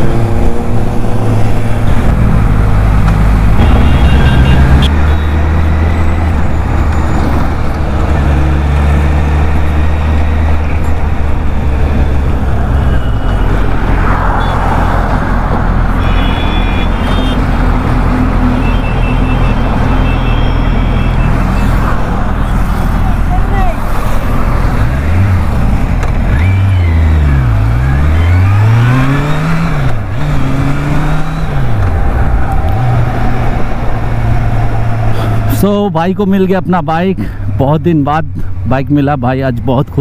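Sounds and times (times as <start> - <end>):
wind and road noise: 0.0 - 40.0
motorcycle engine revving: 21.3 - 32.1.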